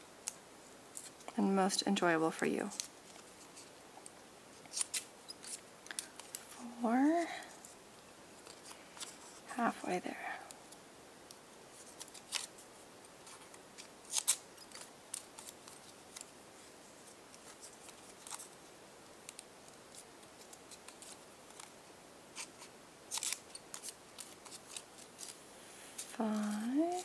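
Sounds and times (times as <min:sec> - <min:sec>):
scissors snipping paper: 0:13.3 - 0:16.3.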